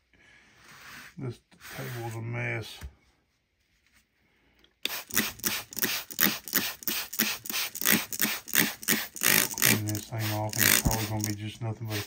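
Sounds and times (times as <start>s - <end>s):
spray bottle squirting water: 4.8s - 12.0s.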